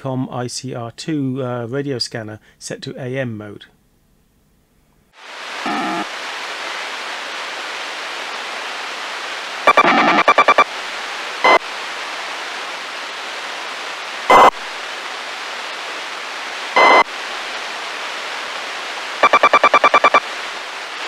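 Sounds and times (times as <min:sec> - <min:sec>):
radio static hiss: 0:05.2 - 0:21.0
buzzing data bursts: 0:09.7 - 0:10.6, 0:14.3 - 0:14.6, 0:16.8 - 0:17.0, 0:19.2 - 0:20.2.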